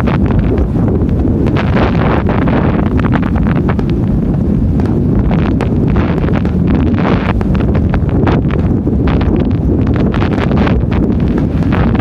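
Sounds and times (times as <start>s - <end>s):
fireworks bursting and crackling: 0.0s - 12.0s
wind rumbling on microphone: 0.0s - 12.0s.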